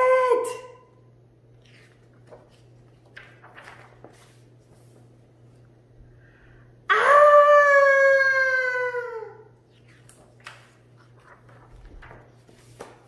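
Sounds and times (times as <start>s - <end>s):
book page turning: 1.5s - 5.2s, 9.7s - 13.0s
woman screaming: 6.9s - 9.5s.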